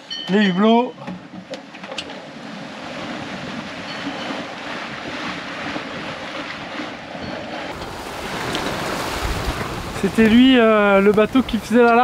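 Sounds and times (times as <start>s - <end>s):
sea rushing along hull: 1.4s - 12.0s
wind buffeting microphone: 2.3s - 12.0s.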